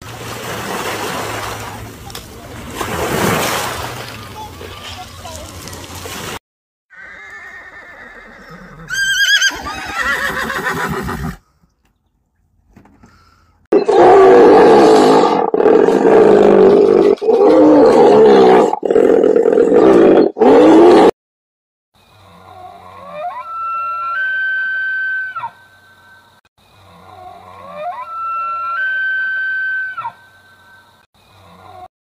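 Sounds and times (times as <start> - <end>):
horse neighing: 6.9 - 11.4.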